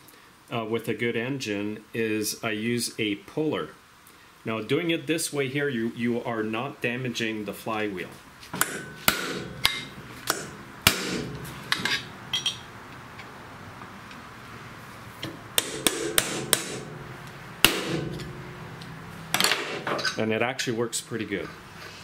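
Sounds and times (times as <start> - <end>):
hammer blows on metal: 8.6 - 12.6, 15.6 - 19.9.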